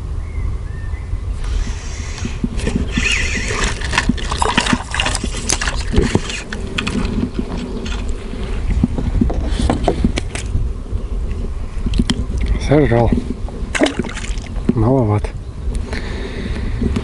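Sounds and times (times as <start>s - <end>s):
wind rumble on microphone: 0.0s - 17.0s
fish splashing at water surface: 3.3s - 6.9s, 13.7s - 14.5s.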